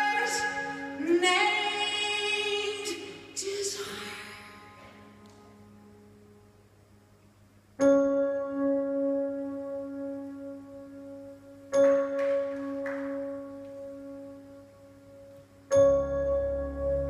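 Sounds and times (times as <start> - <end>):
bell-like keyboard chords: 7.8 - 14.6, 15.7 - 17.0.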